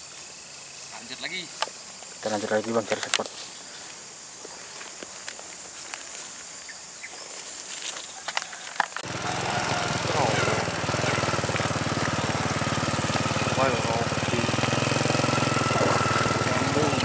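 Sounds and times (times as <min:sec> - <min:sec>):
insect calls: 0:00.0 - 0:17.0
small motorcycle engine running: 0:09.0 - 0:17.0.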